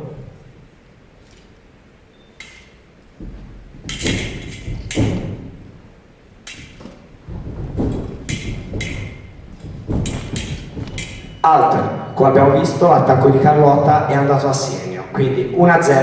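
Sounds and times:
footwork stamps on wooden stage: 0:02.5 - 0:12.2.

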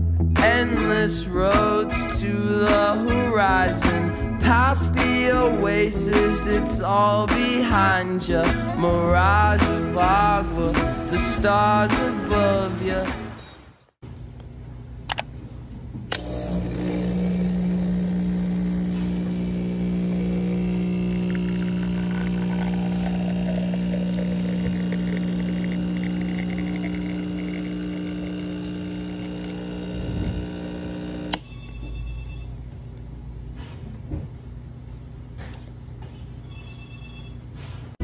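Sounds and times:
espresso machine pump humming: 0:16.1 - 0:31.4
coffee pouring into pitcher: 0:16.2 - 0:31.4.

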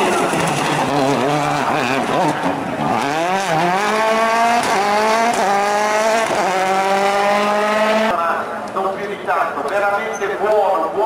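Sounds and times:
rally car engine accelerating: 0:00.0 - 0:08.2.

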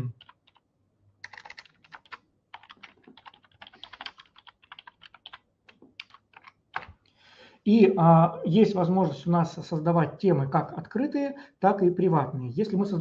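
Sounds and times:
typing on computer keyboard: 0:00.0 - 0:07.0.

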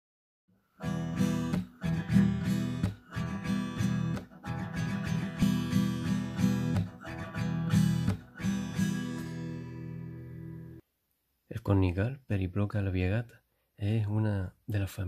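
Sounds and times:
acoustic guitar strumming chords: 0:00.8 - 0:10.8.

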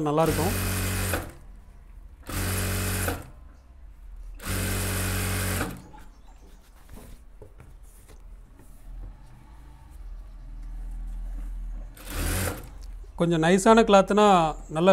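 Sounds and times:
sewing machine running: 0:00.0 - 0:01.4, 0:02.2 - 0:03.3, 0:04.4 - 0:05.8, 0:12.0 - 0:12.7.

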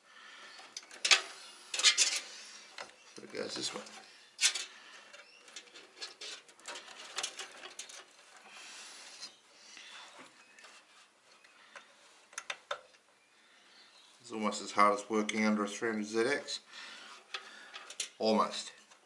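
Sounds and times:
soft rustle: 0:00.6 - 0:12.4.

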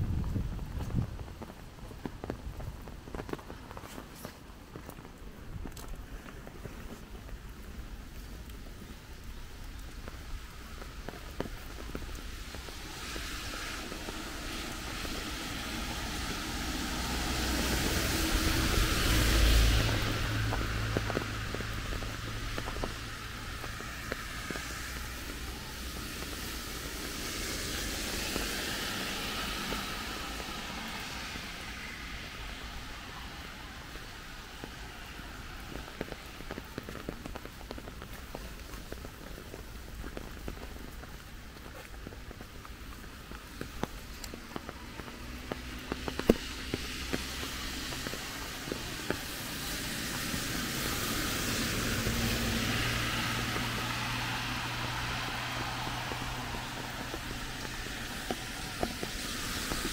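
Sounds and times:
rain falling with soft hiss: 0:00.0 - 0:59.9.

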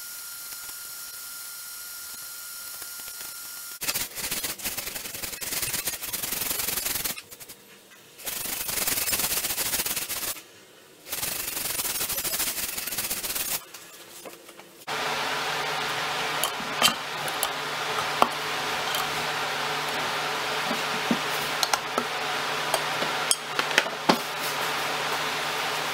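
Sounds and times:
sandpaper rubbing on plastic: 0:02.8 - 0:07.6, 0:08.2 - 0:10.4, 0:11.1 - 0:14.1
steady low hum: 0:10.2 - 0:25.9.

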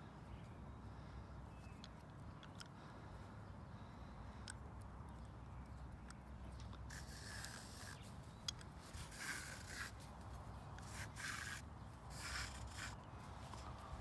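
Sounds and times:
cord rubbing through hole: 0:10.8 - 0:13.0.

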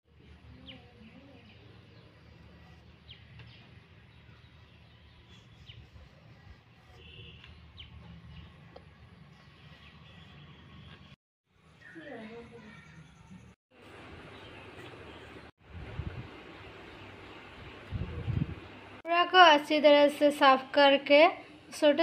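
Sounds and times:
faint birds chirping: 0:00.1 - 0:15.5.

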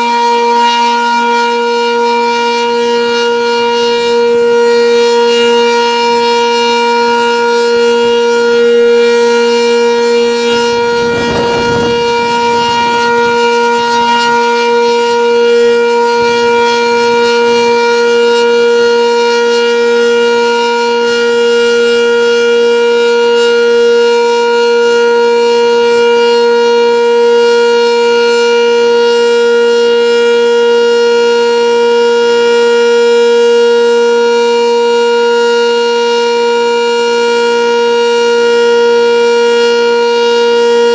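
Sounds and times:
warning siren steady tone: 0:00.0 - 0:40.9
wind gust on microphone: 0:09.6 - 0:17.7.

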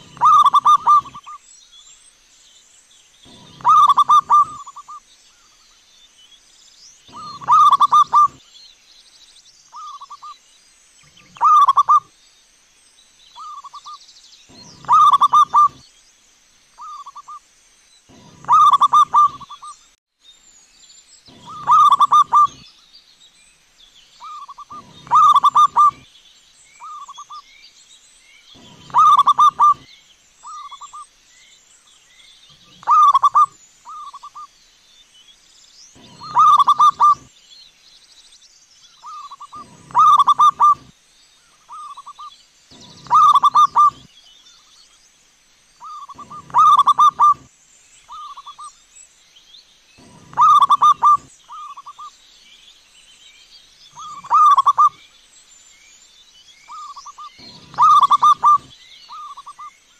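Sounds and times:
dove cooing: 0:00.0 - 0:01.4, 0:03.3 - 0:05.0, 0:07.1 - 0:08.4, 0:11.3 - 0:12.0, 0:14.5 - 0:15.8, 0:18.1 - 0:19.7, 0:21.3 - 0:22.6, 0:24.2 - 0:26.0, 0:28.6 - 0:29.8, 0:32.6 - 0:34.4, 0:36.0 - 0:37.3, 0:39.1 - 0:40.9, 0:42.7 - 0:44.1, 0:45.8 - 0:47.5, 0:50.0 - 0:52.0, 0:54.0 - 0:55.0, 0:56.7 - 0:59.6.

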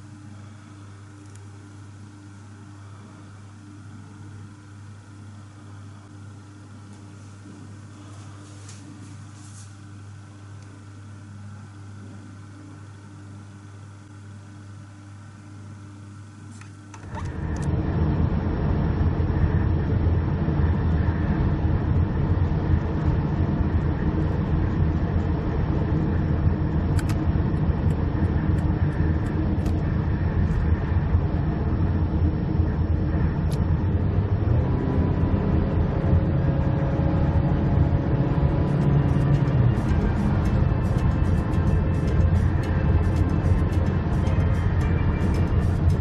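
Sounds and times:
car engine and road rumble: 0:17.2 - 0:46.0
steady tones: 0:37.8 - 0:46.0.

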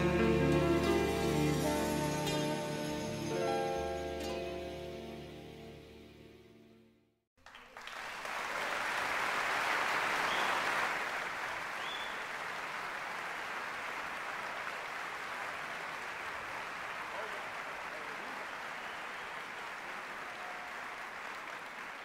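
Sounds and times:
soft instrumental music: 0:00.0 - 0:06.8
audience applause: 0:07.4 - 0:22.0.

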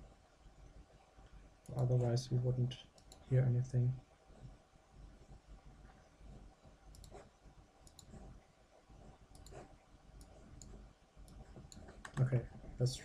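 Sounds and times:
computer mouse clicks: 0:02.9 - 0:03.3, 0:06.9 - 0:08.3, 0:09.3 - 0:12.3.

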